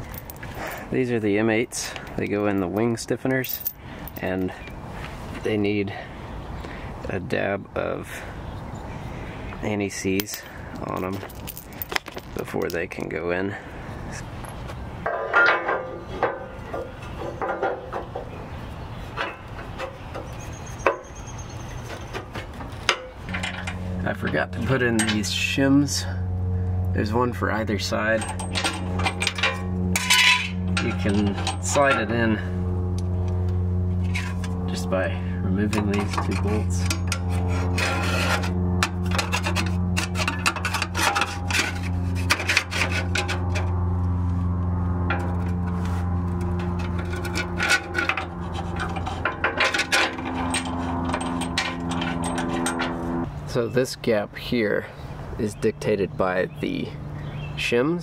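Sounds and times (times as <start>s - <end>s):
steel parts knocking and scraping: 15.0s - 18.3s, 19.1s - 21.2s, 21.8s - 25.3s, 28.1s - 32.2s, 34.0s - 34.8s, 35.5s - 43.7s, 45.1s - 53.3s
metal clanks with ringing: 22.9s - 25.5s, 28.1s - 32.2s, 46.8s - 53.0s.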